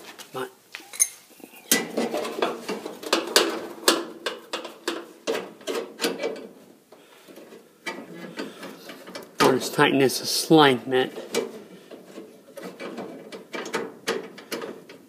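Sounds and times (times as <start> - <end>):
light metal clicks and clinks: 0.9 - 1.2.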